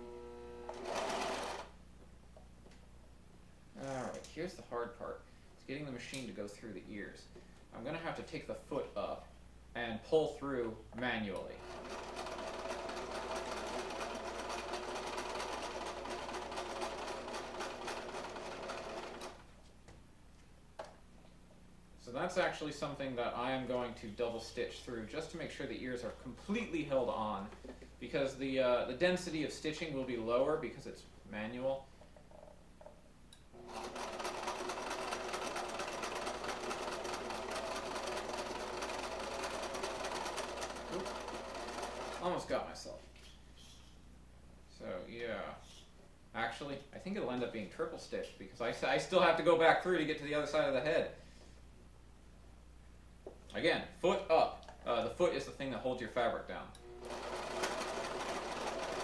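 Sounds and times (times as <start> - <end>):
sewing machine stitching: 0.7 - 1.7, 11.6 - 19.4, 33.6 - 42.3, 56.9 - 59.0.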